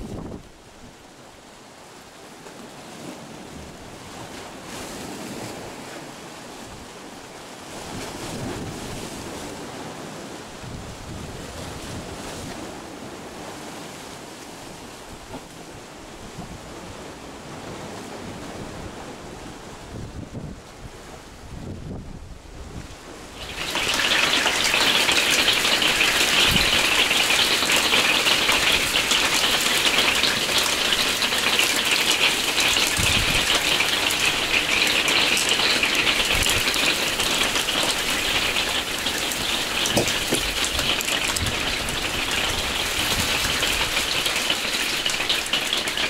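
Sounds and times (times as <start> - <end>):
steady rain falling: 23.2 - 46.0.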